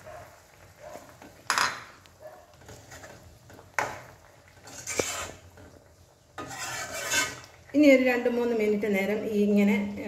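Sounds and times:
metal spoon scraping a pan: 2.5s - 7.7s.

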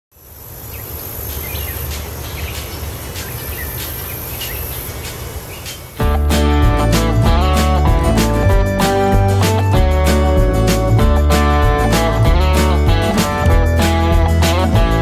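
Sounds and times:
insects buzzing: 0.2s - 6.0s
bird chirps: 0.6s - 6.0s
guitar music: 6.0s - 15.0s.

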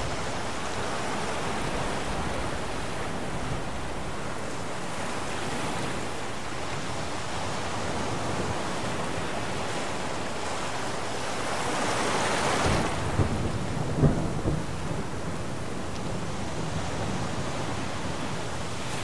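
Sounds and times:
heavy rain: 0.0s - 19.0s
thunder cracking and rumbling: 12.7s - 18.2s.

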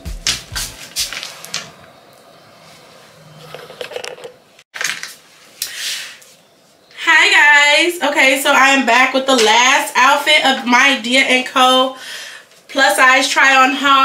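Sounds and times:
camera handling rustles and knocks: 3.4s - 5.1s.

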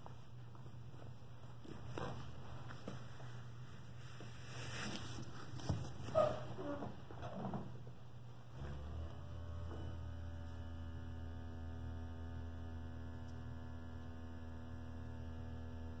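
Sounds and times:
buzzy electric purr hum: 8.0s - 16.0s.

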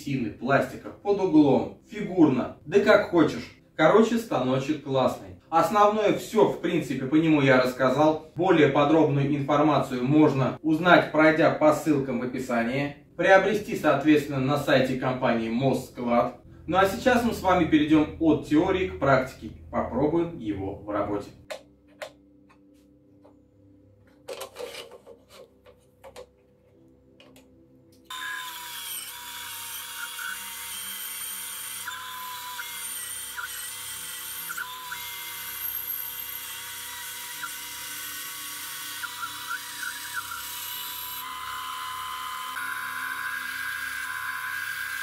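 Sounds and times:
bandsaw cutting wooden board: 28.1s - 45.0s
bandsaw motor and blade whining: 28.1s - 45.0s.

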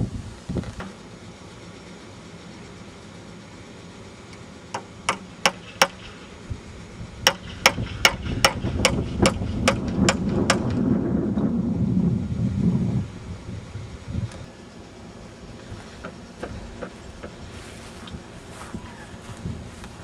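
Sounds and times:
hammer striking wood: 4.7s - 6.2s, 7.3s - 10.7s
low rumble: 7.8s - 14.5s.

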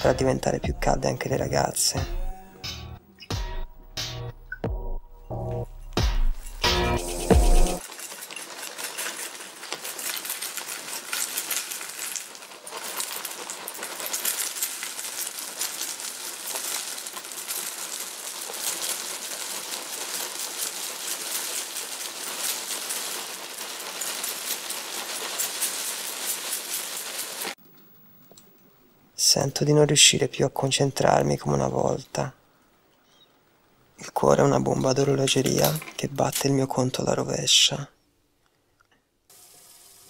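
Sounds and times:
cornflakes pouring from a box: 7.8s - 27.6s.

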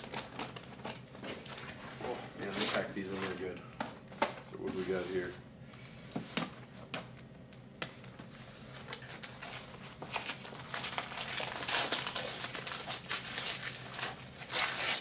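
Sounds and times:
paper crinkling and rustling: 0.0s - 3.5s, 7.9s - 15.0s.

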